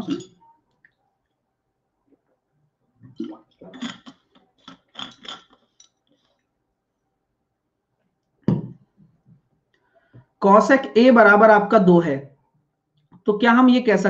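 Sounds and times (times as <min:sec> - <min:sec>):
bottle knocks and clinks: 0:08.5 - 0:08.8.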